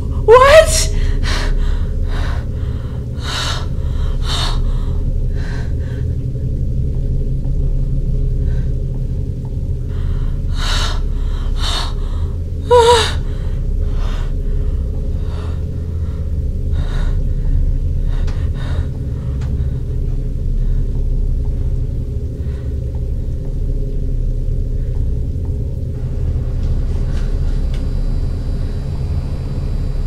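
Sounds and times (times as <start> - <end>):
low rumbling drone: 0.0 - 30.0
woman gasping and sobbing: 12.7 - 13.4.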